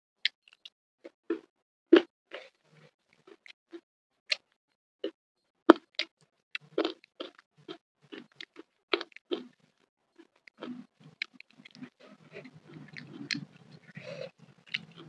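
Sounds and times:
chewing crispy food: 1.3s - 4.6s, 5.7s - 15.0s.

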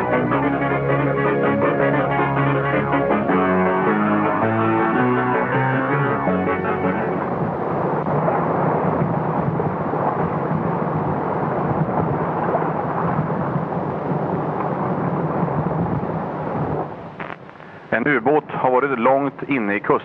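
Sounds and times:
sea waves: 0.0s - 18.4s
wind: 6.6s - 20.0s.

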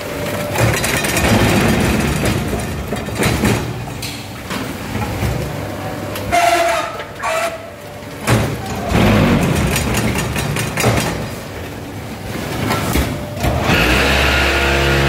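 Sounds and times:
block-making machine rattling: 0.0s - 4.0s, 8.2s - 11.7s.

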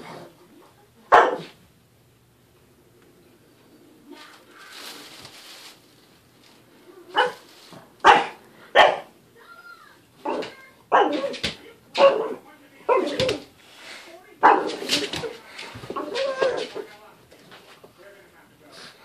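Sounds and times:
dog barking: 1.1s - 1.6s, 7.1s - 7.4s, 8.0s - 9.1s, 10.2s - 13.4s, 14.4s - 15.3s
soft rustle: 3.6s - 8.0s.

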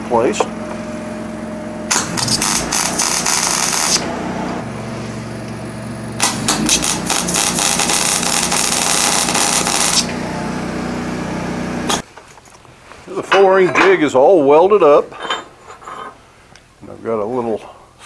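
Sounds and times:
steady low hum: 0.0s - 12.0s
welder arc crackling: 1.9s - 4.6s, 6.2s - 10.3s.

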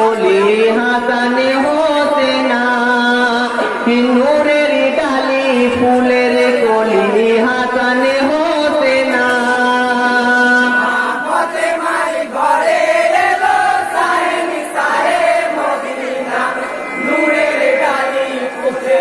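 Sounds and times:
group of voices chanting in unison: 10.9s - 19.0s.

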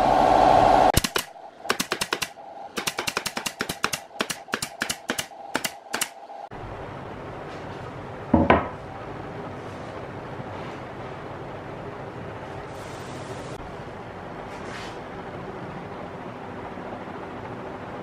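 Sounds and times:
loud pitched hum: 0.0s - 12.2s
nail gun firing: 1.0s - 6.2s.

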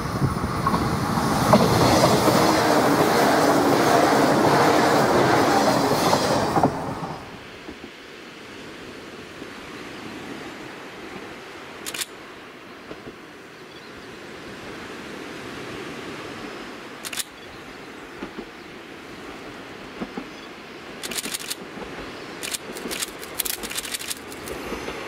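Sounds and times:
outdoor background hiss: 5.9s - 25.0s
sharp clicks: 11.8s - 12.2s, 17.0s - 17.4s, 21.0s - 21.6s, 22.4s - 24.6s.

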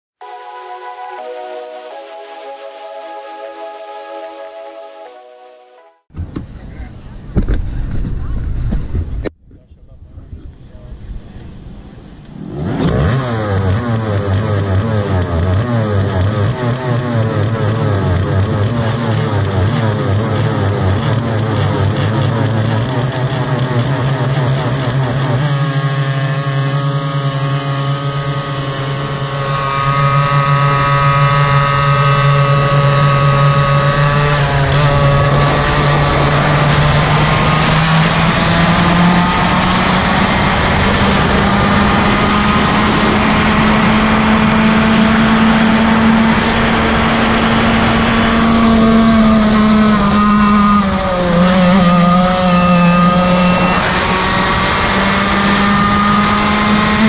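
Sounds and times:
two-stroke kart engine running: 12.3s - 57.0s.

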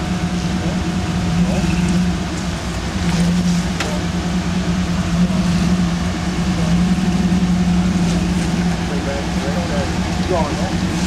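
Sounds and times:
vehicle engine running at low revs: 0.0s - 11.0s.

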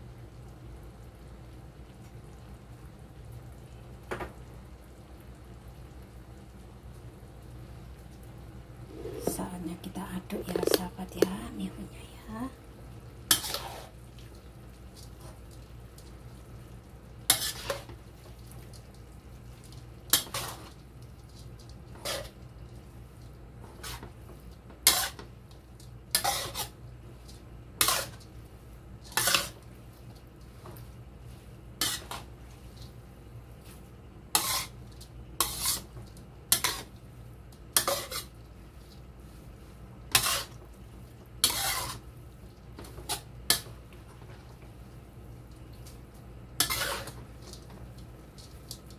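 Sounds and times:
spatula scraping a wok: 8.9s - 9.4s, 13.3s - 14.0s, 17.2s - 18.8s, 20.1s - 22.6s, 23.6s - 33.0s, 33.6s - 42.2s, 42.8s - 44.8s, 45.8s - 48.9s.

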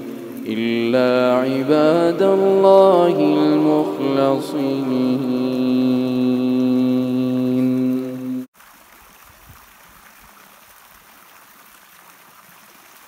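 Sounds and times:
stream water flowing: 0.0s - 13.0s
person reciting a long note: 0.1s - 8.5s.

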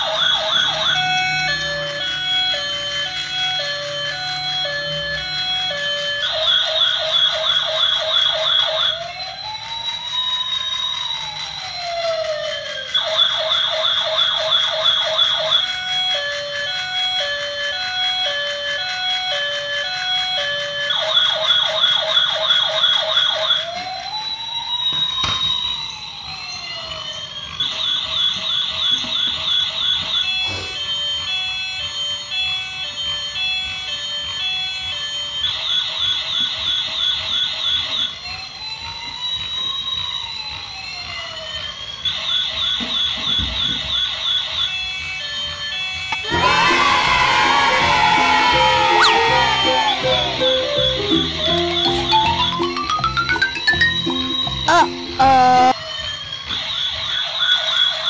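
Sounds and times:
toy police siren: 0.0s - 58.0s
beeping electronic tune: 48.4s - 55.8s.

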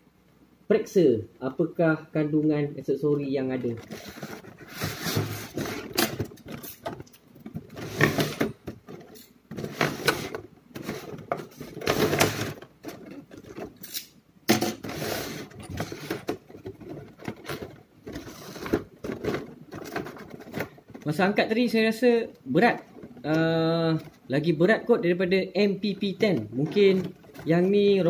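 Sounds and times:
plastic case rattling and clicking: 3.6s - 13.8s, 15.4s - 21.5s, 26.0s - 28.0s.

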